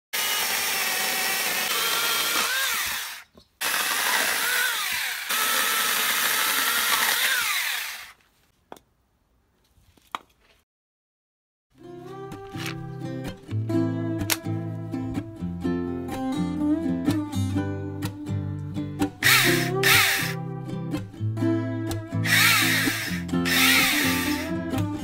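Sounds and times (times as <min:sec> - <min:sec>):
mini chainsaw cutting log: 0:00.2 - 0:08.2, 0:19.2 - 0:20.4, 0:22.2 - 0:24.5.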